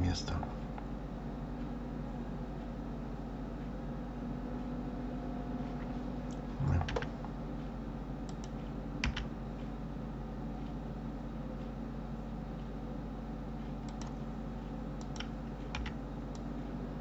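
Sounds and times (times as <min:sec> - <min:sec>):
low electrical hum: 0:00.0 - 0:17.0
keyboard and mouse clicks: 0:06.3 - 0:07.1, 0:08.3 - 0:09.3, 0:13.8 - 0:14.2, 0:15.0 - 0:16.5.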